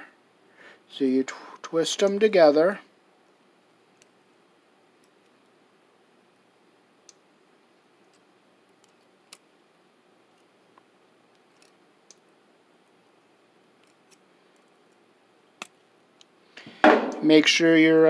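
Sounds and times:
pliers twisting wires clicks: 11.4s - 12.2s, 13.8s - 15.0s, 15.6s - 16.3s.

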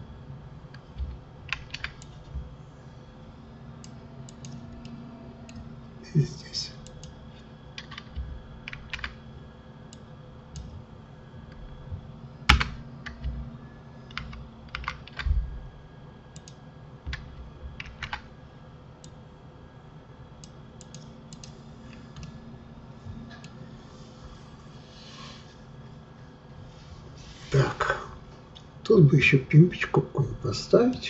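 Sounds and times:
computer keyboard keystrokes: 0.7s - 2.3s, 3.8s - 5.7s, 7.8s - 9.2s, 14.1s - 15.3s, 16.3s - 18.3s, 20.4s - 22.4s.

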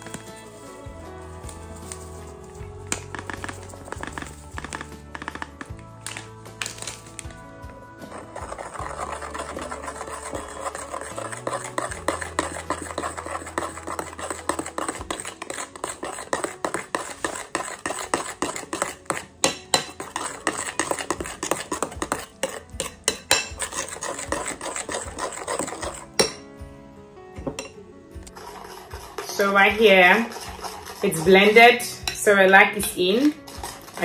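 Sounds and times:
metal spoon scraping glass bowl: 1.7s - 7.1s, 8.0s - 26.5s, 27.6s - 34.0s
spoon clinking against glass: 22.4s - 23.6s.

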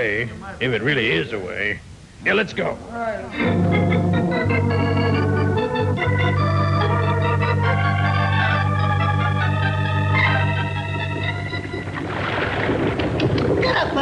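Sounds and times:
organ music: 3.3s - 12.3s.

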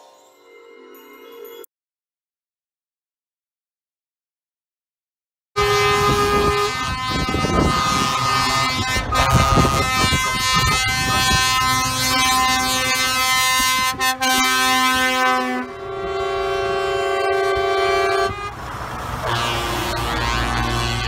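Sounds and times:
truck air horns blaring: 5.6s - 21.0s
trucks rumbling past: 5.6s - 21.0s.

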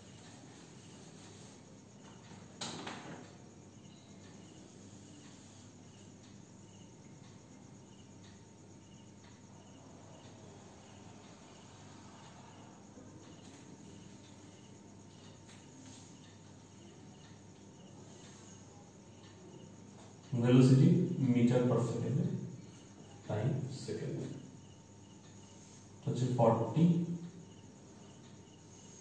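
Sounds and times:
insect chirping: 0.0s - 29.0s.

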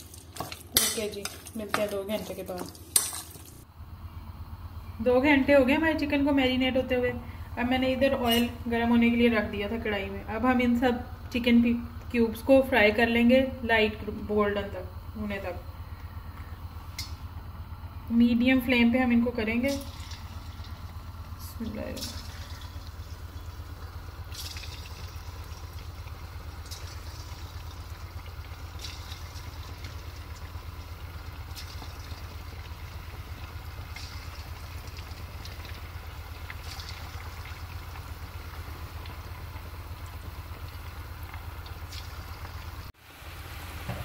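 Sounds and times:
oil bubbling and sizzling: 0.0s - 3.7s, 19.4s - 44.0s
steady low hum: 0.0s - 44.0s.

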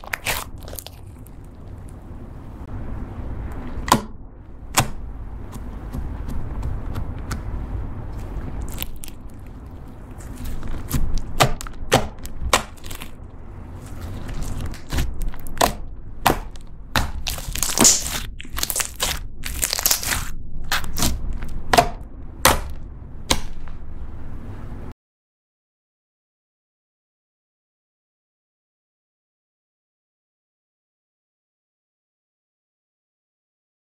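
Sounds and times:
slime popping and crackling: 0.0s - 2.0s, 8.1s - 23.6s.

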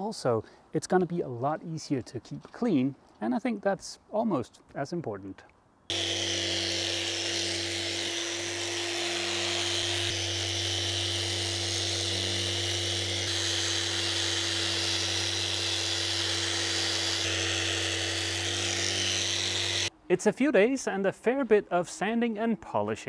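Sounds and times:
orbital sander whirring on paint: 5.9s - 19.9s.

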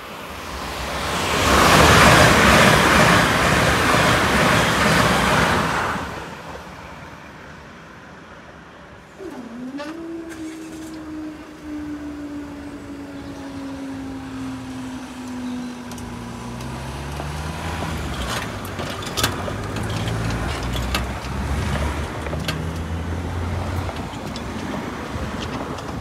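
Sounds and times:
vehicle engines revving: 9.1s - 26.0s
barrier mechanism whine: 9.2s - 16.0s.

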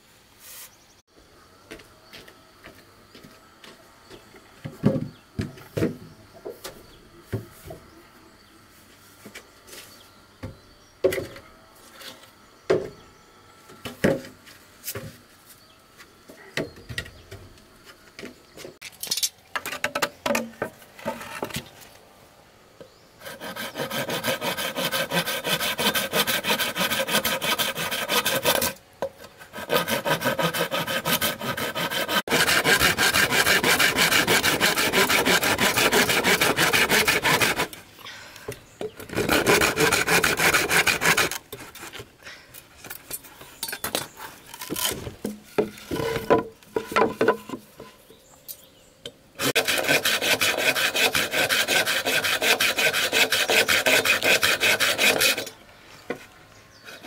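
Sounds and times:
wooden plank and bamboo knocks: 19.5s - 21.6s, 44.7s - 47.7s
hand saw cutting bamboo: 23.2s - 28.8s, 29.4s - 37.8s, 39.0s - 42.0s, 49.4s - 55.6s.

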